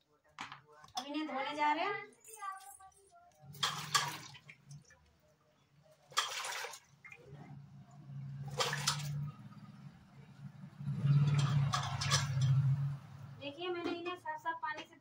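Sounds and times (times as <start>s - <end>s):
water splashing in a pot: 3.4s - 10.0s, 10.8s - 13.4s.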